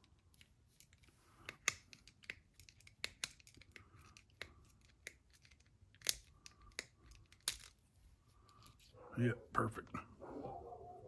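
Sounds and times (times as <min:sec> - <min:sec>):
small metal parts clicking: 0:00.3 - 0:07.8.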